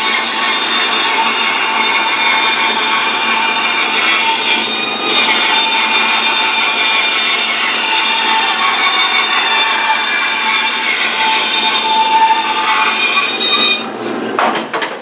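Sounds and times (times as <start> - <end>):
bandsaw motor whining: 0.0 - 13.8
saw rasping through wood: 0.0 - 13.9.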